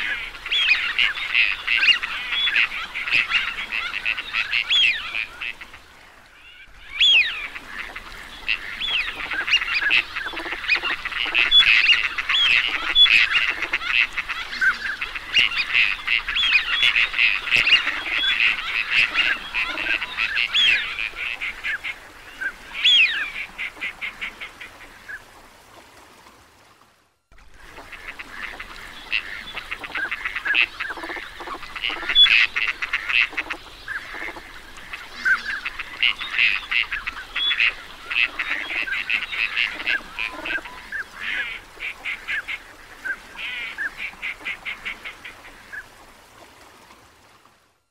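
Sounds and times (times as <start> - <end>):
ducks calling: 6.4 - 25.2, 27.6 - 45.9.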